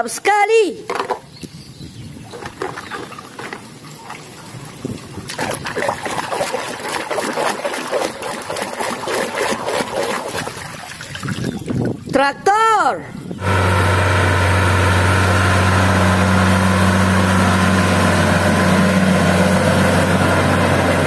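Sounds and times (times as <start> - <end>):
water sloshing in plastic tub: 2.2 - 12.3.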